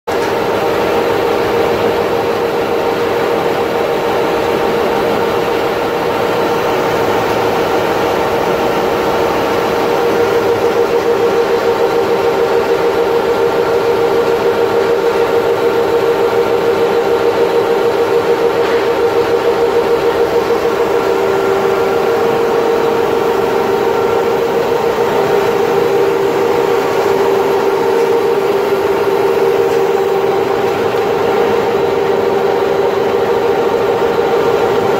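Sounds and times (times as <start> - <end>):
machine hum and whine: 0.1 - 34.9.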